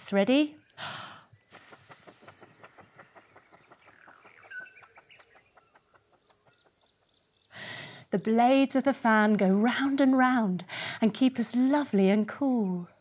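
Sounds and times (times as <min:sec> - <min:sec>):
insects chirping: 0:00.0 - 0:13.0.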